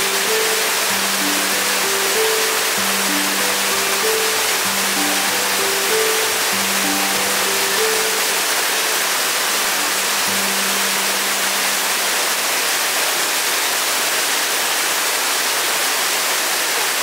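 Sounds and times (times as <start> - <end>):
soft low background music: 0.0 - 12.6
waterfall rushing: 0.0 - 17.0.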